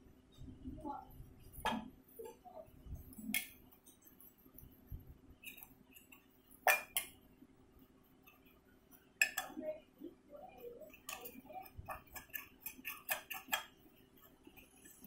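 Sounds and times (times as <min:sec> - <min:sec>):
spoon clinking steel bowl: 0:06.6 - 0:07.1, 0:09.2 - 0:09.5.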